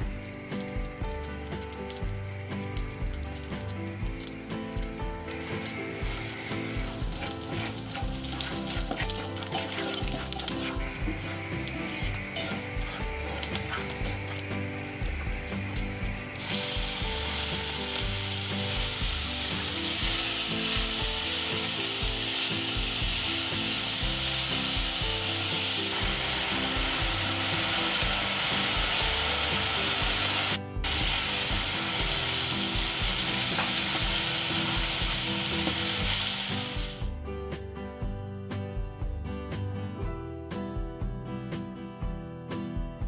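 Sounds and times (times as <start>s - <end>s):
chillies sizzling in hot oil: 0.0s - 37.1s
soft background music: 0.0s - 43.0s
spatula stirring in pan: 5.4s - 21.7s.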